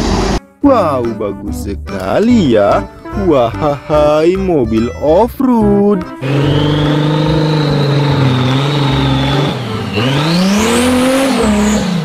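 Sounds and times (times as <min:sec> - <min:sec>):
off-road vehicle engine revving: 0:06.2 - 0:12.0.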